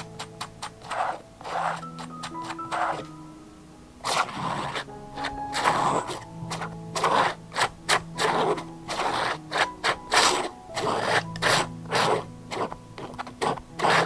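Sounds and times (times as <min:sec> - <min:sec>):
palette knife scraping paint on canvas: 0:00.0 - 0:03.1, 0:04.0 - 0:14.0
soft background music: 0:00.0 - 0:14.0.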